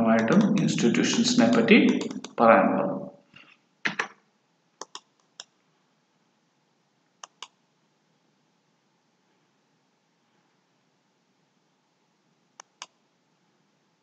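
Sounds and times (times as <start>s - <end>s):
computer mouse clicks: 0.2s - 2.4s, 4.8s - 5.5s, 7.2s - 7.6s, 12.6s - 13.0s.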